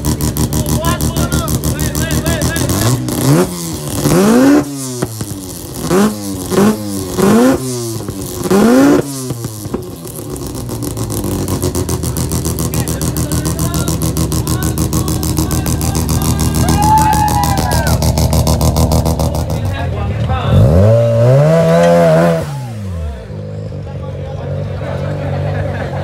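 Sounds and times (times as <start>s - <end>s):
engine lumpy idle: 0.0s - 4.2s, 9.2s - 20.7s
car engine revving: 0.0s - 26.0s.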